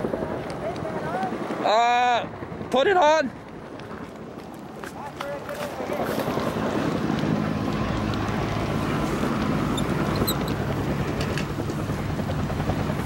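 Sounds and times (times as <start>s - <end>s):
engine running steadily: 5.8s - 13.0s.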